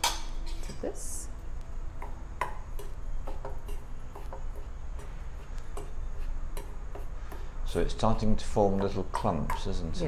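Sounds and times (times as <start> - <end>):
spoon stirring flour: 2.0 - 10.0.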